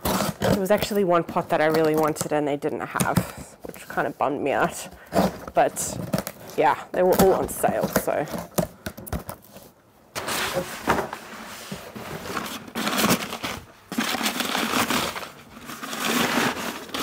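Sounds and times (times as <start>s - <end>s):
packing paper rustling: 4.6s - 17.0s.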